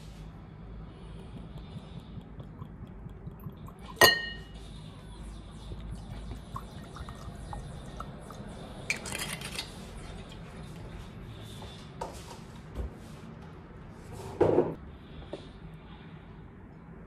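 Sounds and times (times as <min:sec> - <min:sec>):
bottle clinking against glass: 0:03.9 - 0:04.6
liquor pouring into glass: 0:06.0 - 0:08.5.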